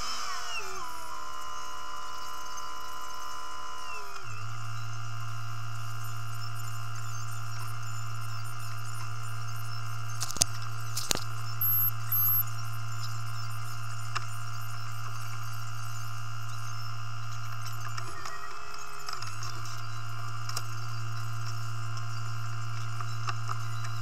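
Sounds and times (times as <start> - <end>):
whining tones: 0.0 - 24.0
sharp clicks: 10.1 - 12.4
short high-pitched beeps: 10.2 - 12.6.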